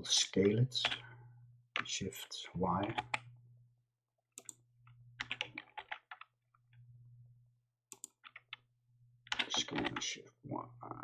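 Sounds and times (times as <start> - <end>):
steady low hum: 0.7 - 1.7.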